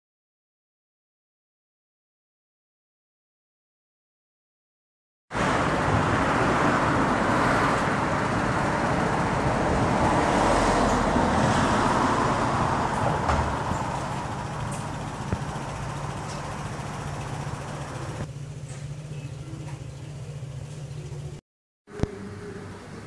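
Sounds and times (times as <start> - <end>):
road traffic rushing past: 5.3 - 23.0.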